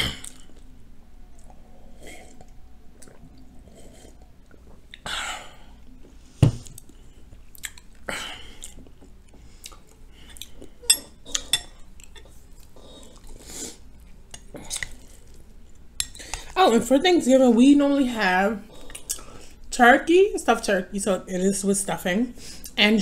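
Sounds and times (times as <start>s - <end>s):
chewing: 1.3s - 5.0s, 5.9s - 16.4s
mug knocking on a table: 6.4s - 6.6s.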